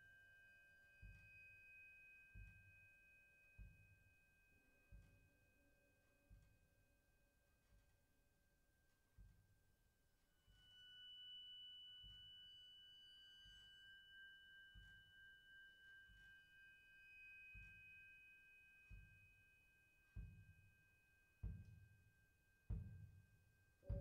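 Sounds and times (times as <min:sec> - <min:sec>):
high ringing metal percussion: 0:10.4 - 0:24.0.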